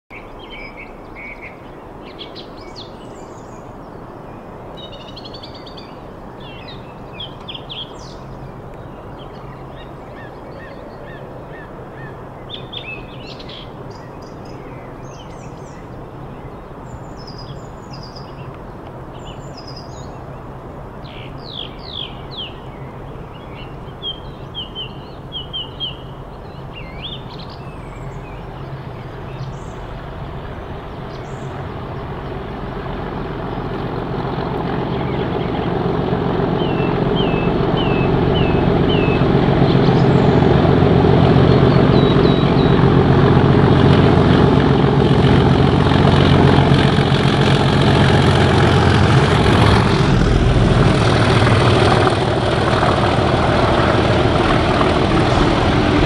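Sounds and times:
birds chirping and trilling: 0:00.1 - 0:32.6, 0:34.6 - 0:43.2
diesel locomotives droning: 0:26.2 - 0:56.0.

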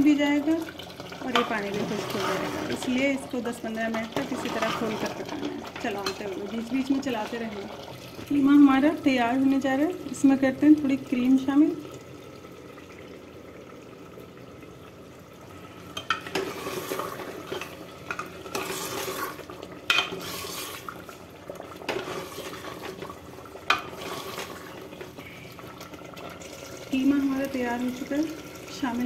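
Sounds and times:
metal ladle scraping pot: 0:01.3 - 0:03.2, 0:03.9 - 0:06.4, 0:16.0 - 0:21.1, 0:21.8 - 0:25.3.

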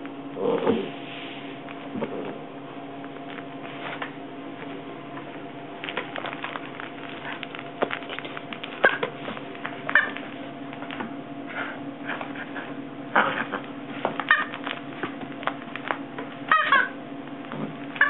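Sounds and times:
puppy scuffling: 0:03.0 - 0:12.8, 0:13.4 - 0:18.0.

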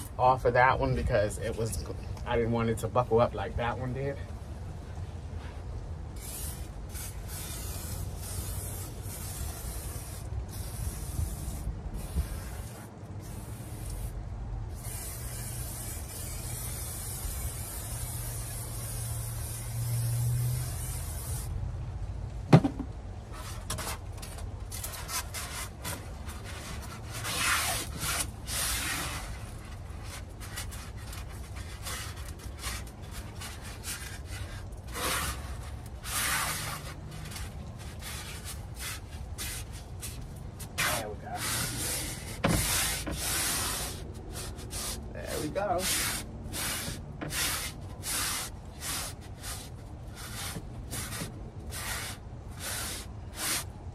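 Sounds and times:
aerosol can spraying: 0:06.2 - 0:14.1, 0:14.7 - 0:21.5, 0:38.1 - 0:53.7
rubbing and scraping: 0:22.5 - 0:53.9.

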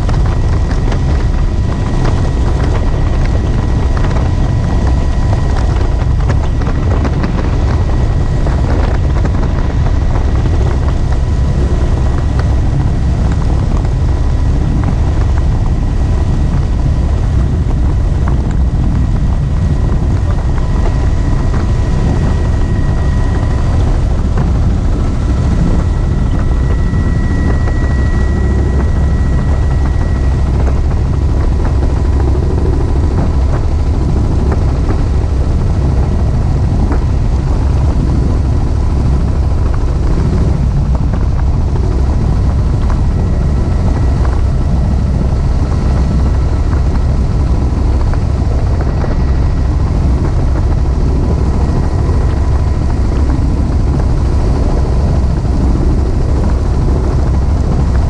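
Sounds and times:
helicopter in flight: 0:00.0 - 0:58.0.

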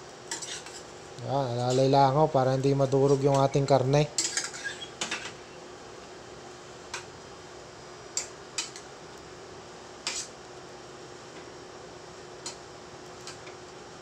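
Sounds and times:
faint steady hum: 0:00.0 - 0:14.0
spoon stirring in a pot: 0:00.3 - 0:00.9.

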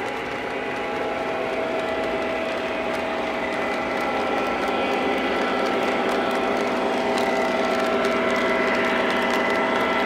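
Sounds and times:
wheels and gears ticking: 0:00.0 - 0:10.0.

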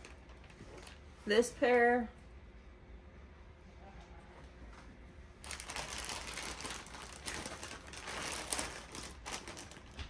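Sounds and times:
packaging crinkling: 0:00.0 - 0:01.0, 0:05.4 - 0:10.0.

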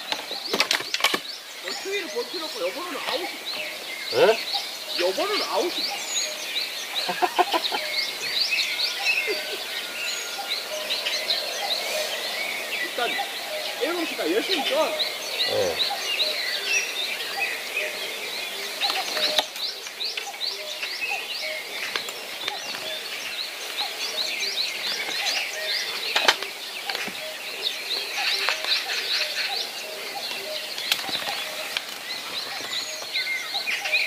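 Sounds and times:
birds chirping chorus: 0:00.0 - 0:34.0
low repeating bird call: 0:01.6 - 0:22.0.

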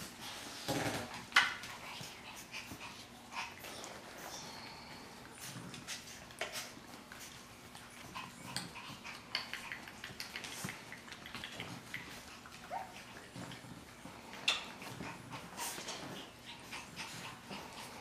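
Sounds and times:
clicks and rustles: 0:05.7 - 0:16.2.

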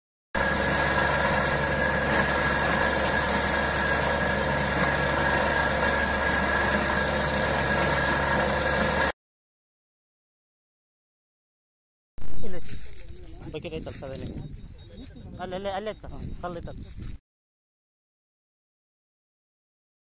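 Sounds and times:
drilling rig engine drone: 0:00.4 - 0:09.1.

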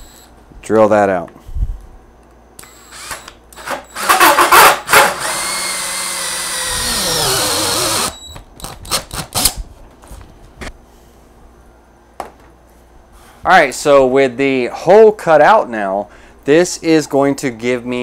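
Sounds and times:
cordless drill with hole saw: 0:02.6 - 0:08.2.

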